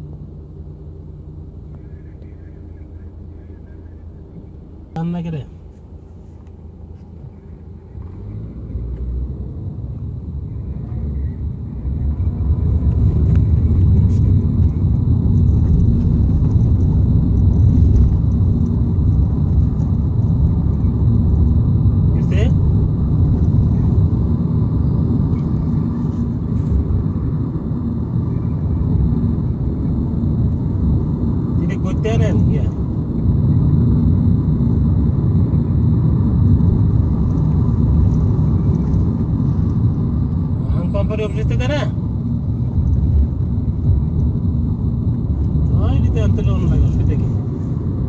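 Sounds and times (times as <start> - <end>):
car road rumble from inside: 0.0 - 48.0.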